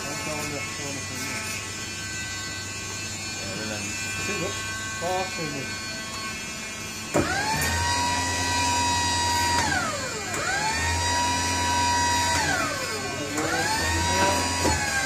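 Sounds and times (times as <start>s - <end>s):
electric motor whining: 0.0s - 15.0s.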